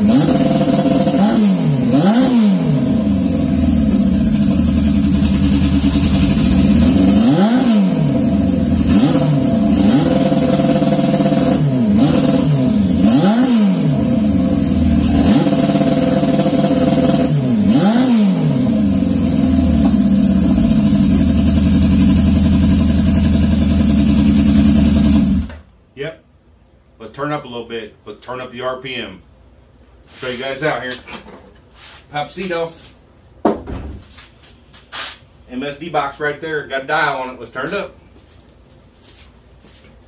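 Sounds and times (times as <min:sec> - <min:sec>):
motorcycle engine revving: 0:00.0 - 0:25.6.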